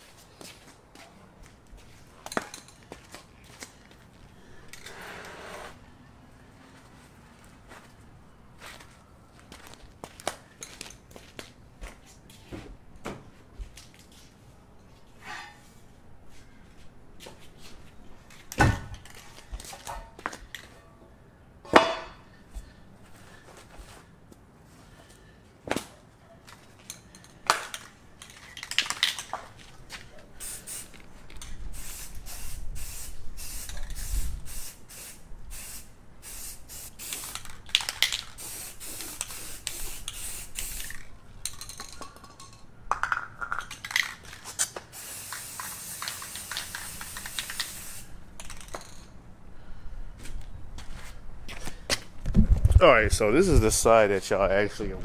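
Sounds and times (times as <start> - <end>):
spray paint can hissing: 30.4 - 31.0, 31.7 - 42.0, 43.6 - 49.1.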